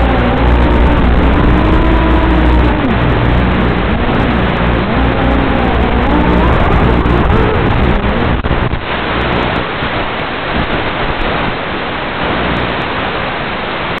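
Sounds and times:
drone motors whining: 0.0 - 9.5
static hiss: 0.0 - 14.0.

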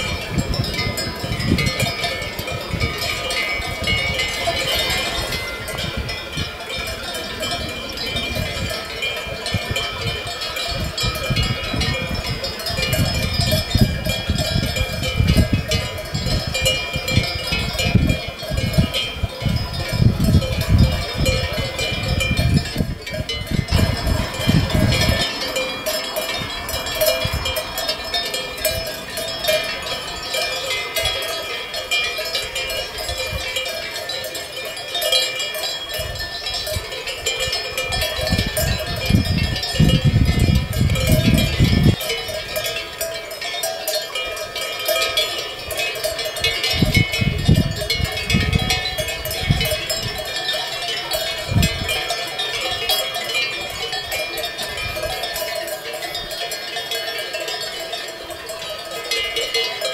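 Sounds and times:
sheep bells clanking: 0.0 - 59.9
low rumbles: 18.6 - 33.5.

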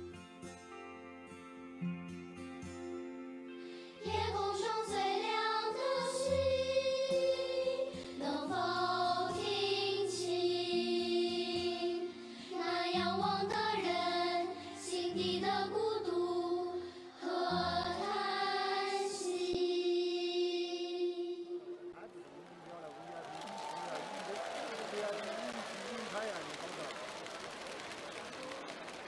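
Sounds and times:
children's choir singing: 4.0 - 22.0.

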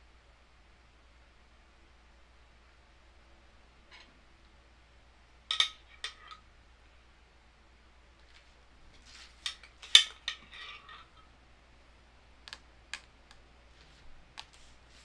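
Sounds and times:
metal spoon clinking and scraping glass: 5.5 - 6.4, 9.4 - 11.3.

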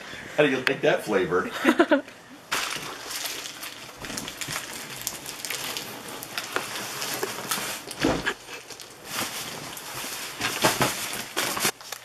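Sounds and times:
paper rustling and crinkling: 2.5 - 12.0
heavy thump: 8.0 - 8.3.

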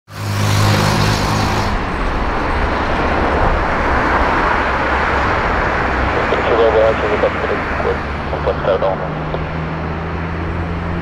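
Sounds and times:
jet engines roaring: 0.1 - 11.0
low hum: 5.0 - 10.8.

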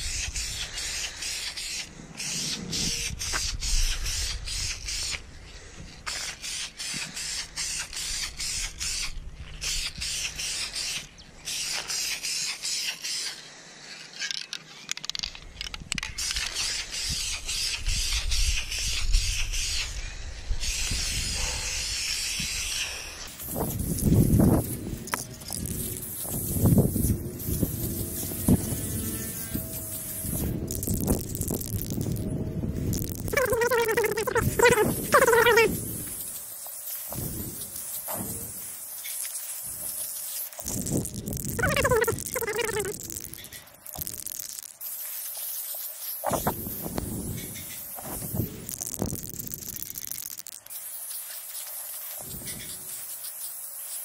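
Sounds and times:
aerosol spray can hissing: 20.6 - 54.0.

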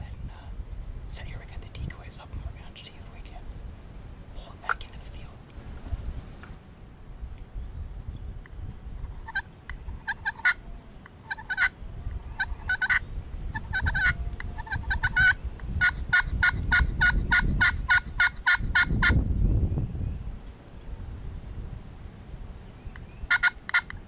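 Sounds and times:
wind rumble on microphone: 0.0 - 24.0
turkey yelping: 10.0 - 10.7, 11.3 - 11.7, 12.4 - 19.2, 23.3 - 24.0.

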